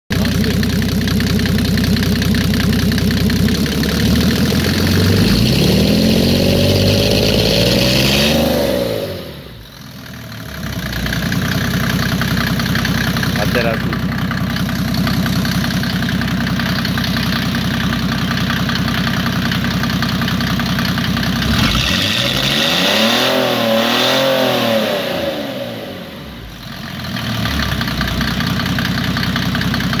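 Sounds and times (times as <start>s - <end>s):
diesel engine idling and revving: 0.1s - 30.0s.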